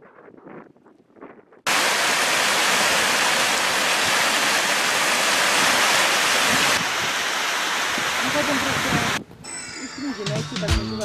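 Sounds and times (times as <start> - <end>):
meltwater stream rushing: 1.7 - 9.2.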